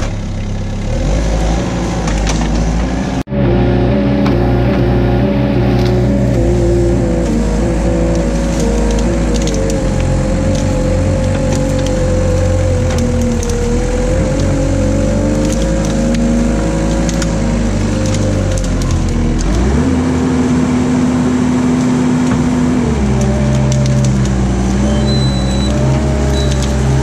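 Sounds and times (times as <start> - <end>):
loader engine and hydraulics: 0.0 - 27.0
branches snapping and crackling: 1.9 - 3.0, 4.2 - 27.0.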